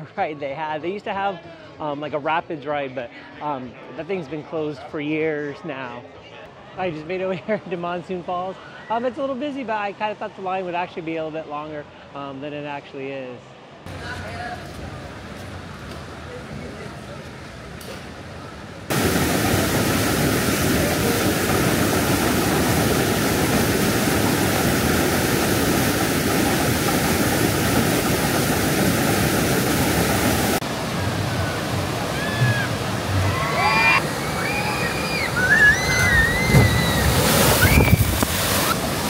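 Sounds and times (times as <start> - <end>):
water rushing and splashing: 13.9 - 39.0
high-pitched voices shrieking: 31.3 - 38.0.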